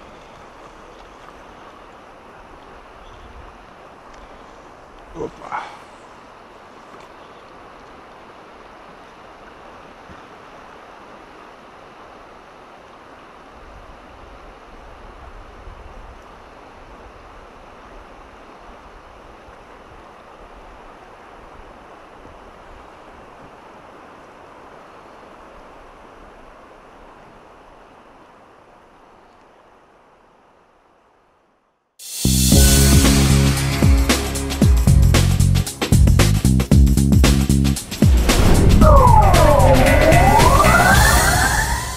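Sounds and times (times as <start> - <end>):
river rushing over shallows: 0.0 - 30.9, 37.7 - 41.9
wind rumble on microphone: 37.8 - 41.9.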